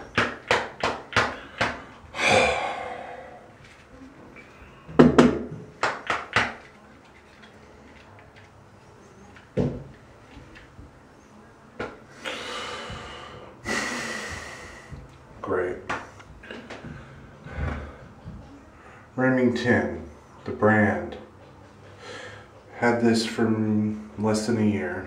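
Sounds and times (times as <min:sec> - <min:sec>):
breathy blowing: 0:01.4 - 0:03.6, 0:12.2 - 0:15.0.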